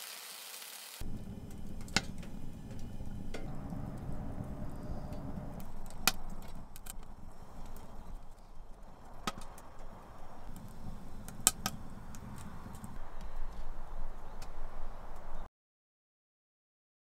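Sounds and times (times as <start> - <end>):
wood fire crackling in stove: 0.0 - 15.5
sharp pops of fire: 5.6 - 13.0.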